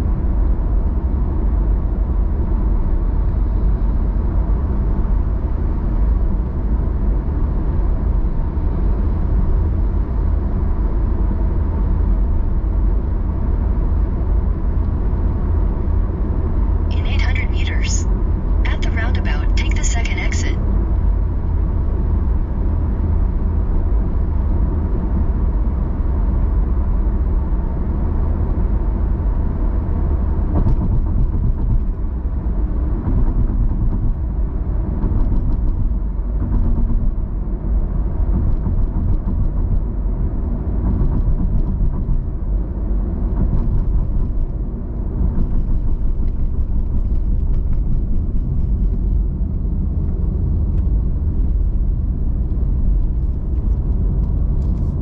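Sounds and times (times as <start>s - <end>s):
car driving rumble inside cabin: 19.7s - 55.0s.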